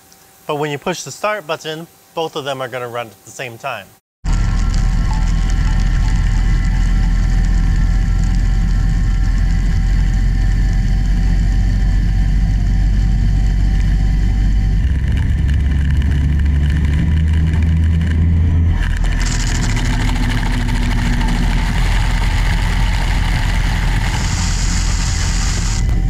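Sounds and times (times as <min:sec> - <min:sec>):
lathe machine rumble: 0:04.3 - 0:26.0
higher cutting hiss: 0:23.5 - 0:25.9
hiss of metal cutting: 0:23.8 - 0:25.9.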